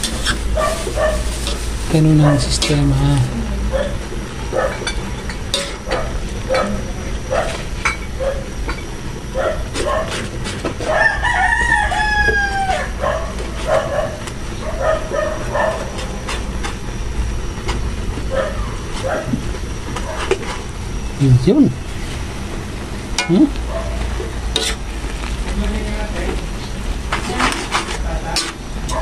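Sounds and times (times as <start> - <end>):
steady low rumble: 0.0 - 10.5
rooster crowing: 10.8 - 15.9.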